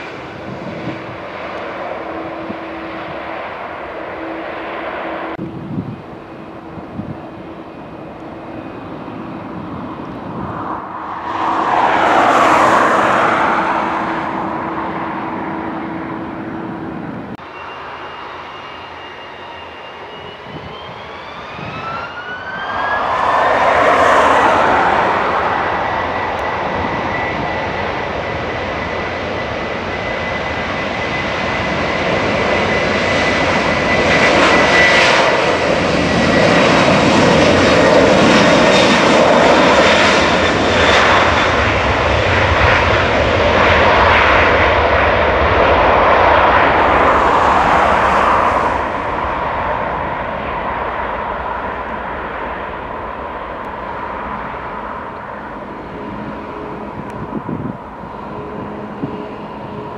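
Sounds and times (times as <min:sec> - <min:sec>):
jet engine high whine: 0:00.0 - 0:59.9
jet engine rumble: 0:00.0 - 0:59.9.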